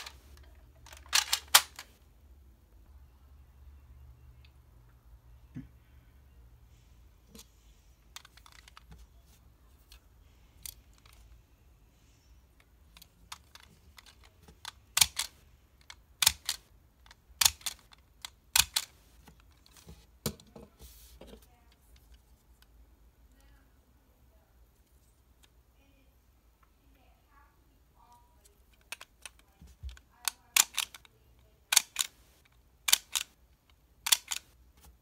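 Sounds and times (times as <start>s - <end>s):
plastic toy clicking: 0.0s - 1.9s, 12.9s - 19.6s, 28.7s - 34.6s.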